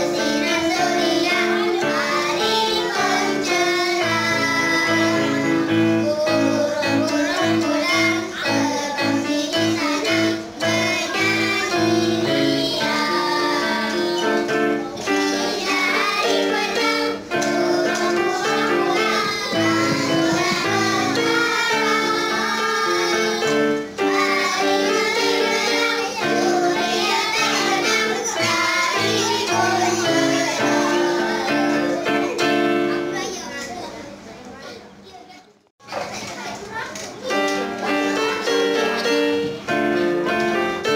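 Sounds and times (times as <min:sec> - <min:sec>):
girls singing together: 0:00.0 - 0:32.7
electronic keyboard: 0:00.0 - 0:33.6, 0:37.2 - 0:40.9.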